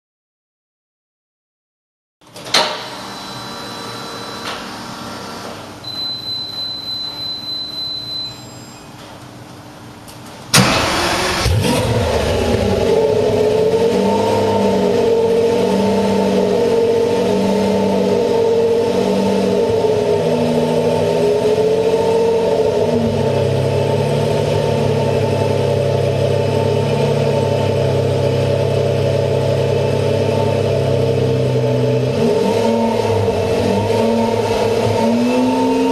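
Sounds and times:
car engine firing: 0:10.5 - 0:17.2
car engine idling: 0:10.5 - 0:32.2.

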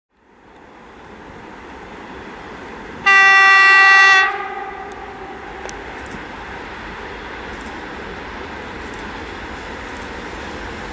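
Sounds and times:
freight train rumble: 0:00.1 - 0:10.9
locomotive horn blast: 0:03.0 - 0:06.4.

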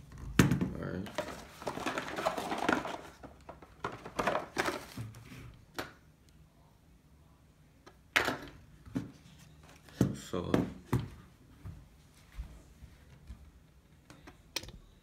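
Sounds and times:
cardboard and paper rustling: 0:01.0 - 0:05.5.

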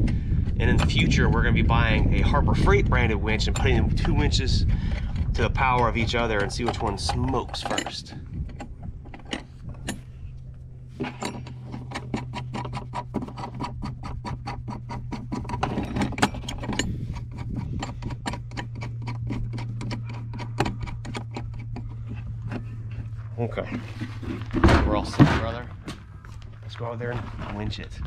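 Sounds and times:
low hum: 0:00.0 - 0:28.0
ratcheting wrench clicking: 0:11.0 - 0:22.7.

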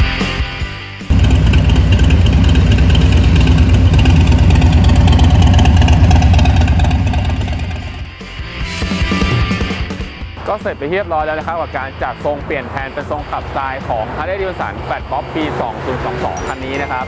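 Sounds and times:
music: 0:00.0 - 0:01.1, 0:08.0 - 0:17.0
motorcycle engine running: 0:01.1 - 0:08.1.

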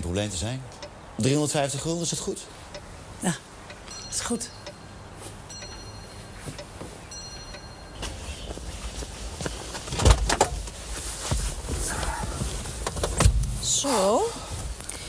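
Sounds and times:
car door shutting: 0:09.9 - 0:11.4, 0:12.0 - 0:13.6.

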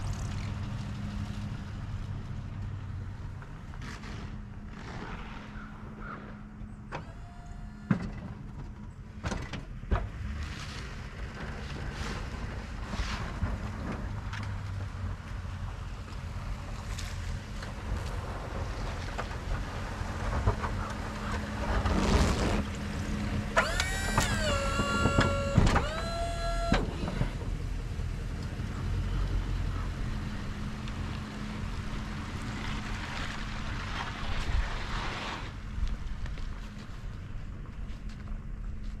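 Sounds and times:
hydraulic pump whining: 0:06.9 - 0:08.2, 0:23.5 - 0:27.6
pickup truck engine running: 0:14.0 - 0:33.8.

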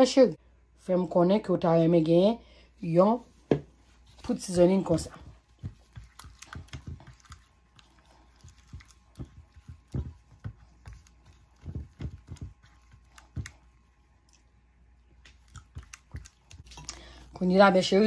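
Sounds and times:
spatula stirring paste in glass dish: 0:04.2 - 0:14.4, 0:15.1 - 0:17.9.

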